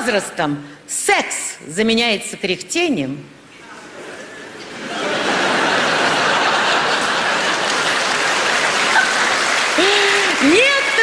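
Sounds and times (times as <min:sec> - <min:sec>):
audience laughing and applauding: 0:04.5 - 0:11.0.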